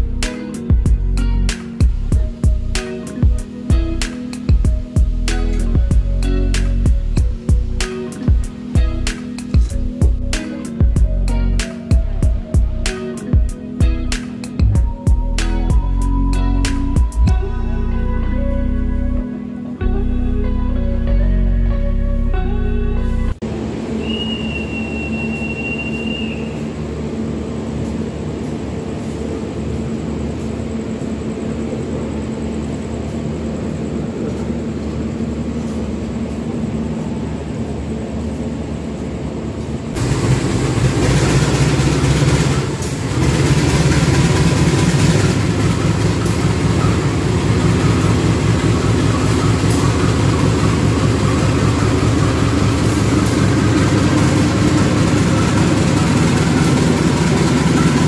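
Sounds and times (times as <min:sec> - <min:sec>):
diesel locomotive idling: 0:00.0 - 0:21.6, 0:22.4 - 0:58.0
diesel engine low hum: 0:00.0 - 0:58.0.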